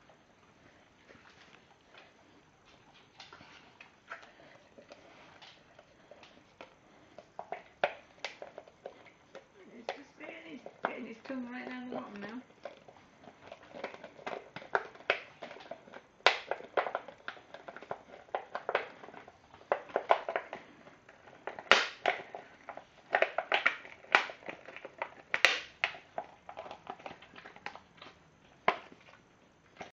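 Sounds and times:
plastic pot crackling: 9.4s - 20.6s.

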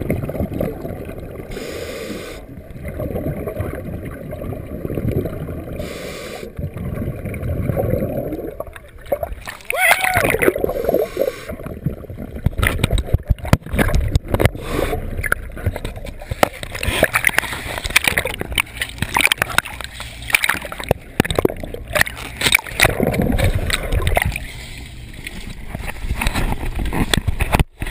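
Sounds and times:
underwater bubbling of exhaled air: 0.0s - 27.9s.

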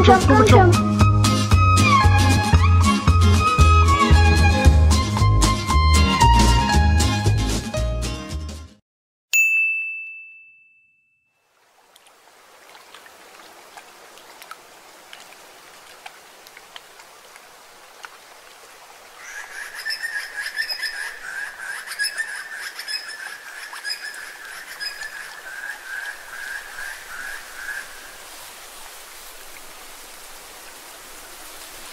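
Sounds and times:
soft water hiss: 11.4s - 31.9s.

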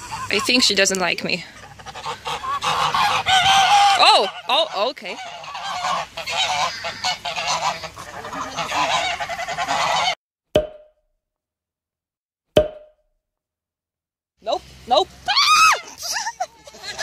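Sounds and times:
geese honking: 0.0s - 10.2s, 15.8s - 17.0s
sharp knocks: 10.6s - 11.0s.

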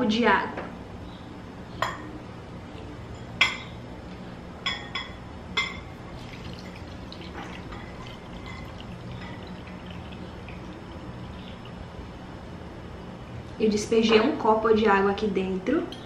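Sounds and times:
glass clinking: 3.2s - 3.7s, 4.6s - 11.8s
water trickling: 6.0s - 12.4s.

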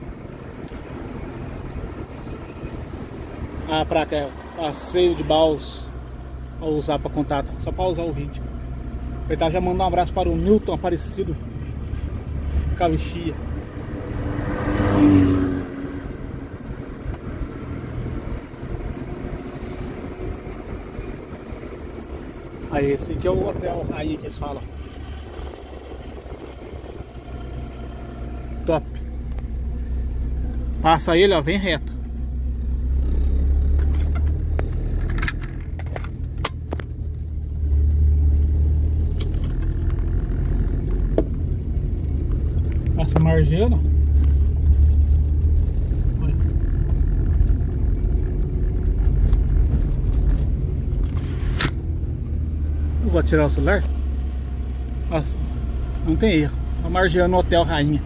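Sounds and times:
low engine rumble: 0.0s - 58.0s
motor vehicle passing: 10.2s - 31.3s.

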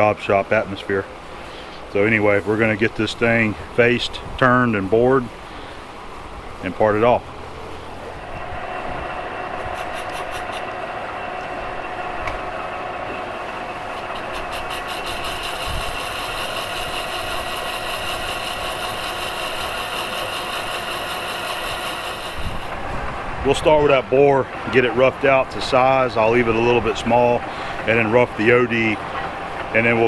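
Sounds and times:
lathe machine hum: 5.3s - 30.0s
high-pitched cutting tone: 8.1s - 11.9s, 13.0s - 22.8s.

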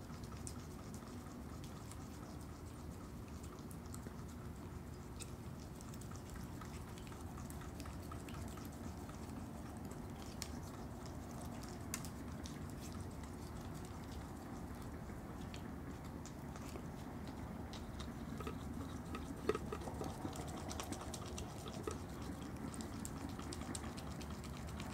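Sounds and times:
animal chewing and crunching: 0.0s - 24.9s
low background noise: 0.0s - 24.9s.

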